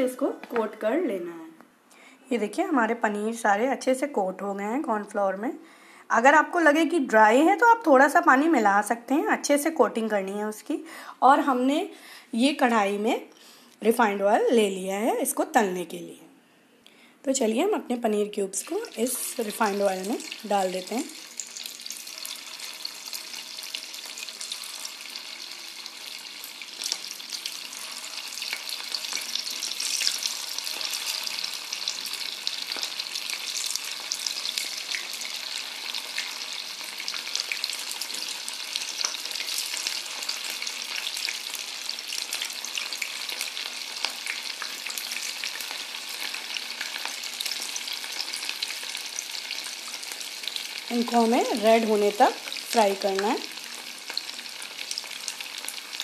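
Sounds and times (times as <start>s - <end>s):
food sizzling in hot oil: 18.4s - 56.0s.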